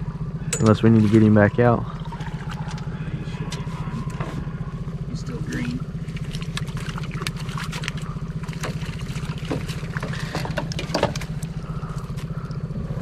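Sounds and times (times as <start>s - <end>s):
engine running with low pulse: 0.0s - 13.0s.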